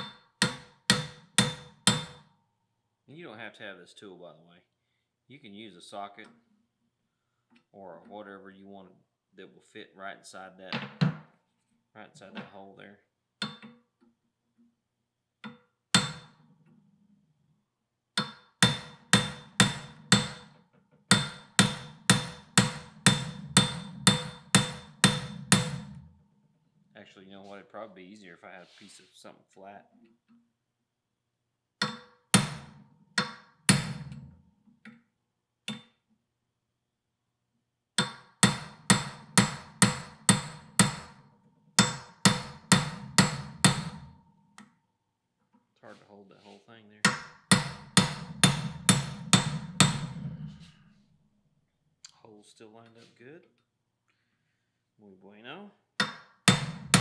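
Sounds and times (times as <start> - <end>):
hammer striking metal: 0.0 - 2.3, 13.4 - 13.8, 15.4 - 16.4, 18.2 - 26.1, 31.8 - 34.2, 38.0 - 44.7, 47.0 - 50.6, 56.0 - 57.0.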